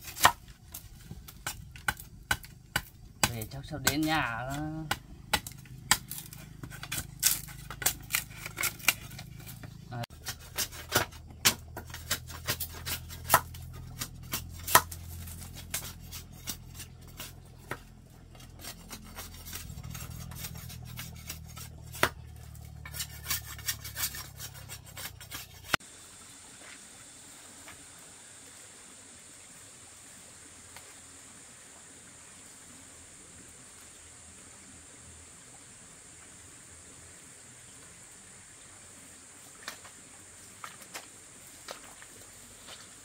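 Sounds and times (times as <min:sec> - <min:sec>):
low hum: 0:11.5 - 0:25.8
faint hiss with high whine: 0:25.8 - 0:43.0.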